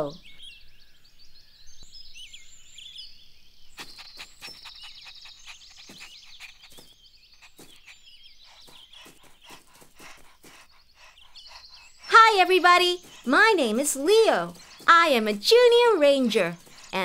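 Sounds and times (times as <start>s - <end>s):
birds chirping: 0.0s - 17.0s
quick run of soft sounds: 3.8s - 12.1s, 16.3s - 17.0s.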